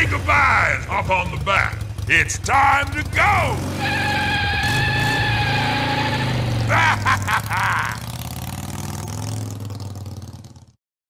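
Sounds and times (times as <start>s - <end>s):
recorded voice: 0.0s - 3.6s
recorded motorcycle engine revving: 0.0s - 10.8s.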